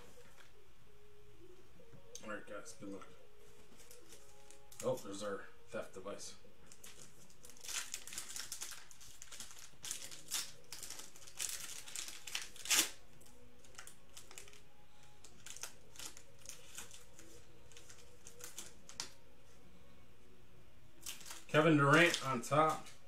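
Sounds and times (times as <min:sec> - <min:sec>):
foil wrapper crinkling and tearing: 0:06.7 - 0:14.6, 0:15.2 - 0:19.2, 0:21.0 - 0:23.0.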